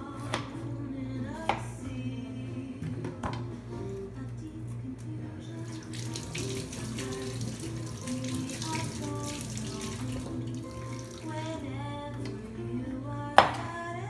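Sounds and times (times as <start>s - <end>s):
background music: 0.0s - 14.0s
tap water running into sink: 5.7s - 11.5s.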